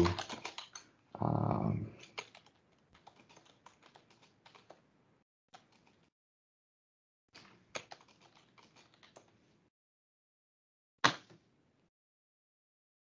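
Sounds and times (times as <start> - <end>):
keyboard keystrokes: 0.0 - 0.8.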